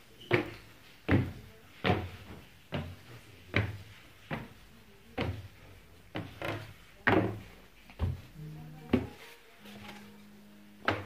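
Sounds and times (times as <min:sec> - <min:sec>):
footsteps on wooden stairs: 0:00.3 - 0:04.6, 0:05.2 - 0:09.2.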